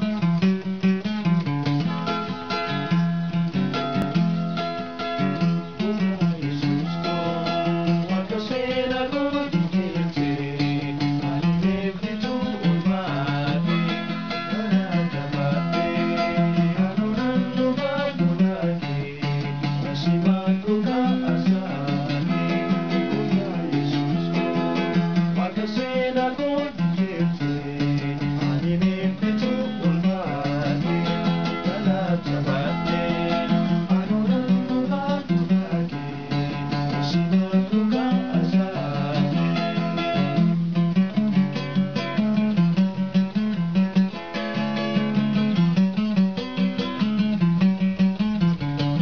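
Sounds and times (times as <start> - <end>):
strummed acoustic guitar: 0.0 - 49.0
two men singing: 5.4 - 40.5.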